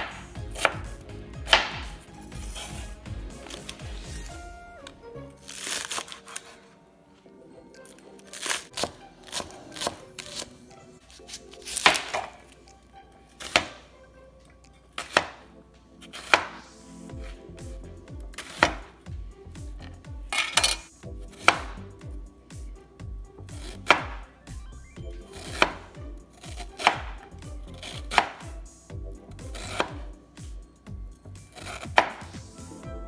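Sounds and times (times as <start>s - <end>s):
knife chopping on plastic board: 0.0s - 2.8s, 16.2s - 16.6s, 18.3s - 18.9s, 21.4s - 21.8s, 23.6s - 24.2s, 25.4s - 25.8s, 26.4s - 27.2s, 27.9s - 28.5s, 29.6s - 30.1s, 31.6s - 32.3s
quiet background music: 0.0s - 33.0s.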